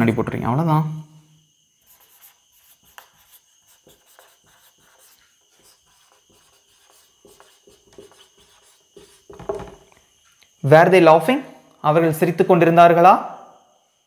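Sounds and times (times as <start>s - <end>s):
marker rubbing on whiteboard: 1.8s - 9.9s
thump: 9.3s - 9.9s.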